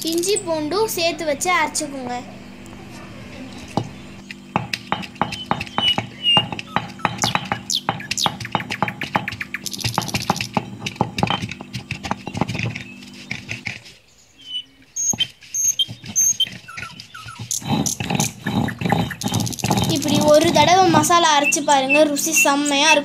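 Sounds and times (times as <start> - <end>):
stone scraping on stone: 2.9 - 14.0, 15.0 - 21.1.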